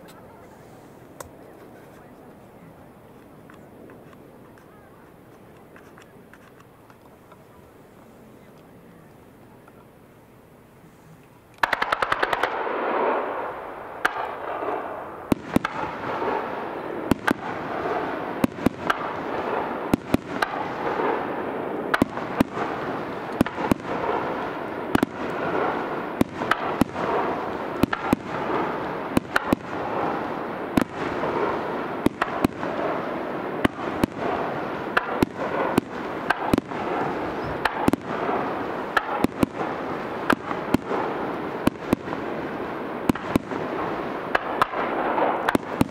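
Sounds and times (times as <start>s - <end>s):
continuous noise: 0.0s - 45.9s
fireworks cracking: 10.7s - 45.9s
fireworks bangs: 11.6s - 45.9s.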